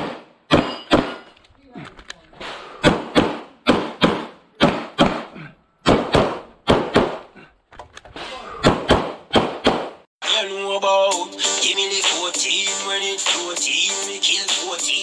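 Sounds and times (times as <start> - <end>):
pistol shots: 0.0 - 1.3, 2.8 - 7.3, 8.6 - 10.0.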